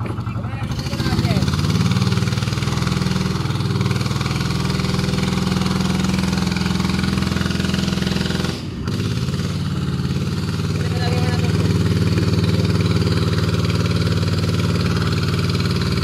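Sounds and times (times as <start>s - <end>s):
boat engine running: 0.0s - 16.0s.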